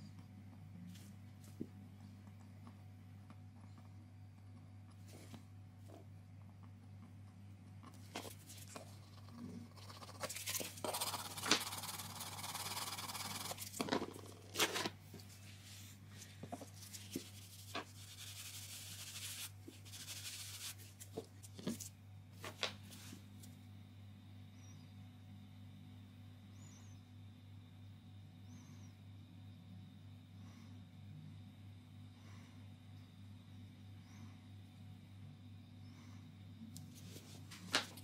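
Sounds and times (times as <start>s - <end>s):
steady low hum: 0.0s - 38.0s
scratchy rubbing on floor: 8.2s - 13.8s, 14.6s - 21.9s.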